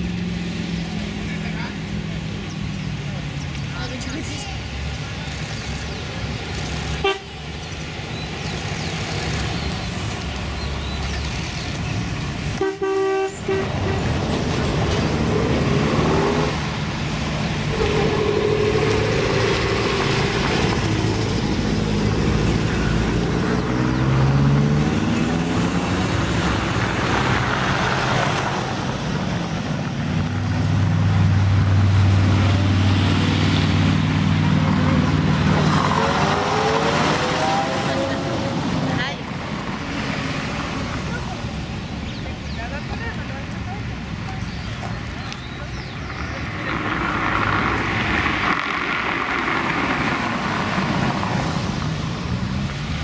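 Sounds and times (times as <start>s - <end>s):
cars driving past: 0.0s - 53.0s
car horn toot: 7.0s - 7.4s, 12.6s - 14.1s
old car engine approaching: 13.8s - 53.0s.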